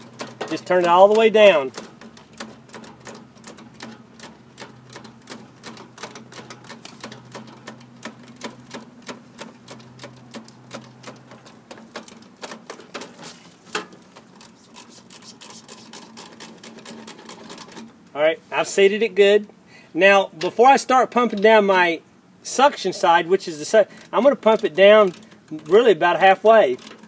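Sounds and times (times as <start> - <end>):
wrench ratcheting clicks: 23.9 - 27.0.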